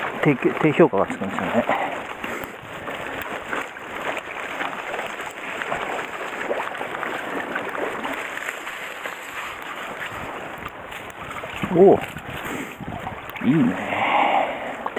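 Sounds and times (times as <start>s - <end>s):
stream water rushing: 0.0s - 14.9s
net sloshing through grass: 2.8s - 13.2s.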